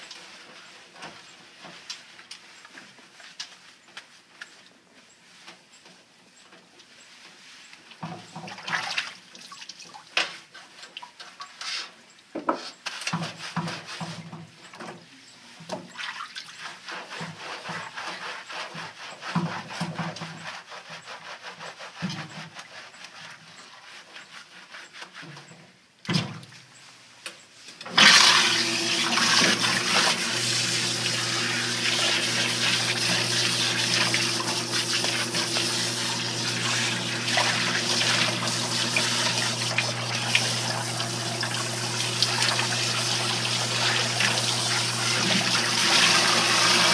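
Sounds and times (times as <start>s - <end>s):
hands scrubbing wet fur: 12.8s - 14.2s, 16.0s - 25.4s, 28.1s - 46.9s
pump hum: 27.9s - 46.9s
water spraying onto coat: 28.0s - 46.9s.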